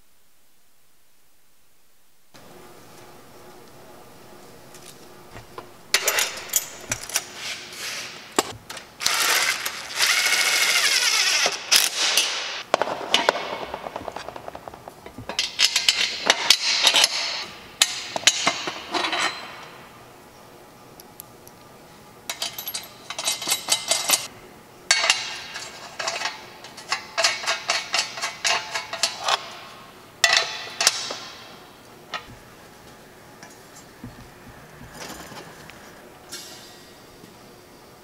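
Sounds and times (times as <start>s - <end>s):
metal parts clinking: 5.9s - 7.6s, 22.3s - 24.3s
cordless impact driver running: 9.0s - 11.9s.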